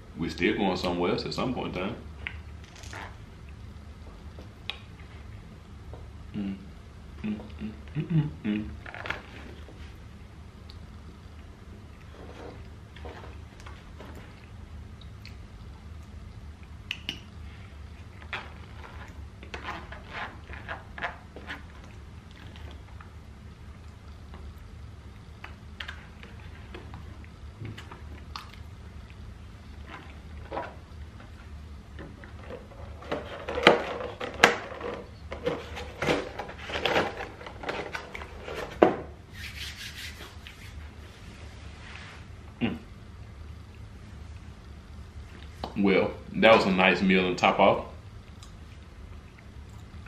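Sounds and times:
steady low hum: 0.0 - 50.0
rubbing and scraping at table: 12.1 - 13.3, 32.5 - 42.2
chewing and food handling noises: 23.8 - 34.2, 48.2 - 50.0
crinkling: 29.8 - 38.8.

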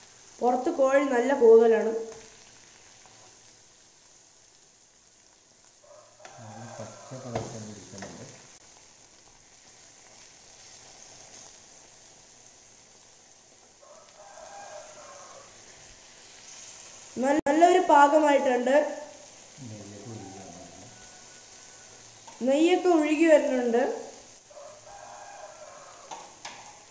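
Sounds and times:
chicken sizzling on griddle: 0.0 - 26.9
rooster crowing: 5.8 - 7.8, 13.8 - 15.6, 19.6 - 22.3, 24.1 - 26.7.

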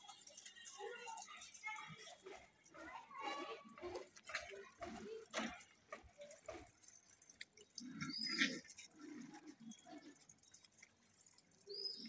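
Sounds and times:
puppies suckling and scuffling: 0.0 - 12.0
bird chirp: 7.7 - 10.6, 11.5 - 12.0.

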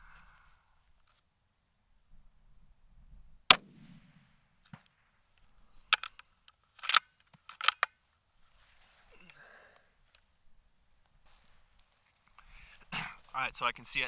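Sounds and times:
rifle shot: 3.5 - 4.9
rifle bolt clicking: 5.9 - 6.2, 6.8 - 7.9.

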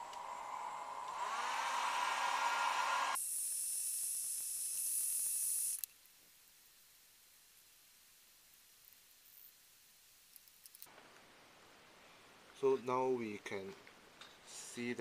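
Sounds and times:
hair dryer blowing: 0.0 - 3.2.

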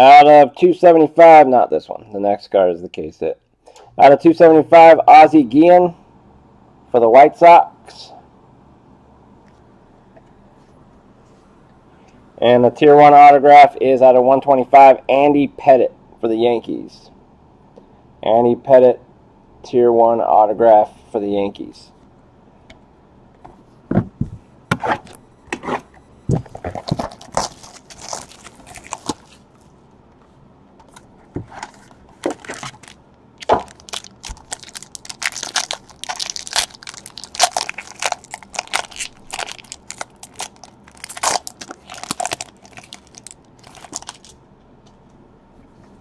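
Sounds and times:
foil wrapper crinkling: 26.6 - 29.4, 32.2 - 44.3.

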